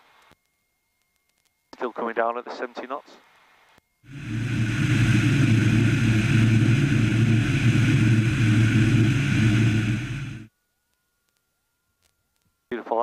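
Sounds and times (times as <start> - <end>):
light aircraft engine and propeller: 4.1 - 10.5
loud rushing airflow: 4.1 - 10.5.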